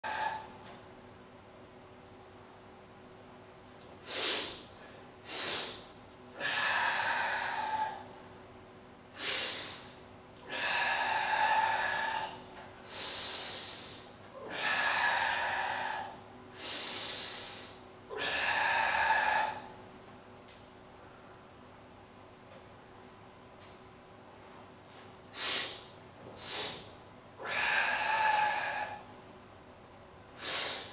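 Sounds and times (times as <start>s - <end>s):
man breathing forcefully: 0.0s - 0.6s, 4.0s - 8.2s, 9.2s - 19.8s, 25.3s - 29.1s, 30.4s - 30.9s
faint steady hum: 0.0s - 30.9s.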